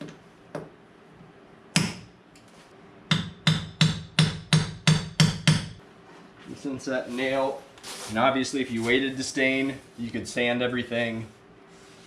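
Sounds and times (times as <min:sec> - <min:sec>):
hammer tapping: 0:03.1 - 0:05.8.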